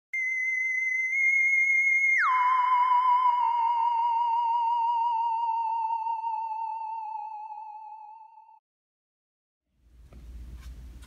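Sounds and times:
high electronic tone swooping down: 0:00.2 - 0:08.4.

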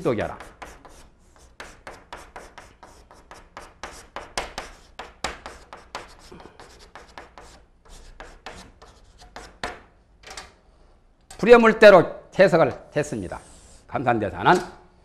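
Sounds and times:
chalk scratching on blackboard: 0:00.0 - 0:09.9, 0:13.2 - 0:13.9.

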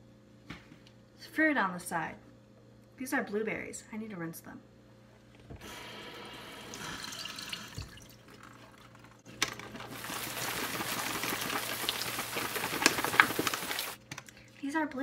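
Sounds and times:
tap water running and spattering: 0:05.6 - 0:14.0.

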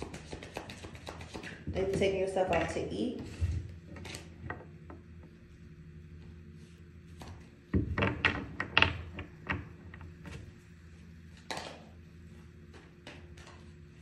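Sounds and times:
faint steady hum: 0:00.0 - 0:14.0
sharp knocks and clicks: 0:07.7 - 0:10.1.

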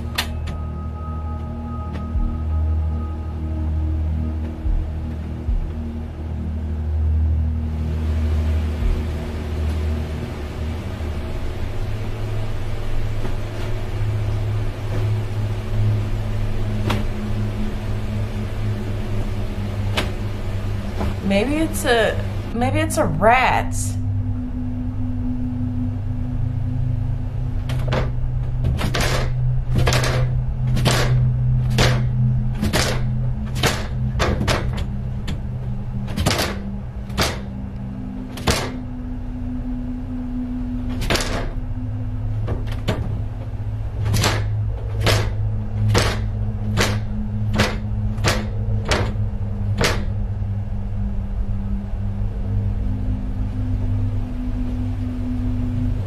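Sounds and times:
steady low hum: 0:00.0 - 0:56.0.

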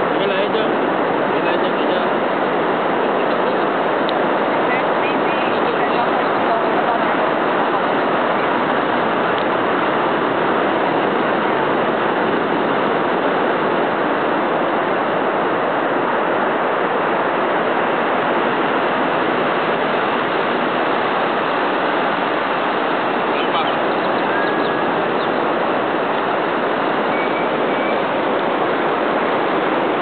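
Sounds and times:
ocean surf breaking on shore: 0:00.0 - 0:30.0.

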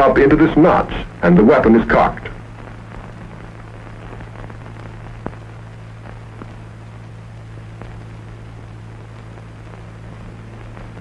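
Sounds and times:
low hum and hiss: 0:00.0 - 0:11.0
faint ticks: 0:02.6 - 0:11.0.

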